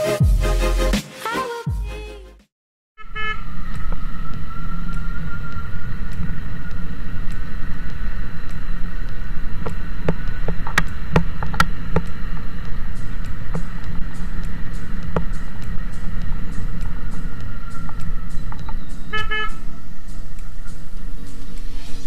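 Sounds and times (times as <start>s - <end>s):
wind and road noise: 3.0s - 22.0s
sharp clicks: 3.7s - 19.3s.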